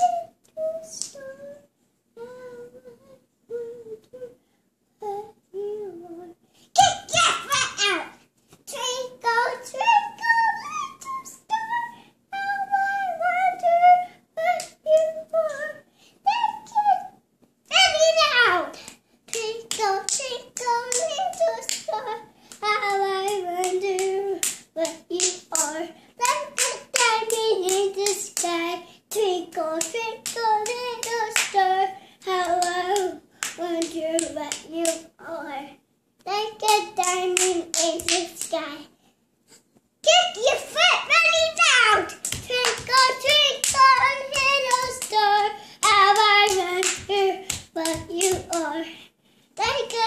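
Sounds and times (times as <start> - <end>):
girl singing: 0.0 - 39.0, 40.0 - 50.0
hands clapping: 18.9 - 21.9, 23.3 - 28.5, 29.8 - 31.6, 32.5 - 35.0, 36.7 - 38.6, 41.6 - 48.7.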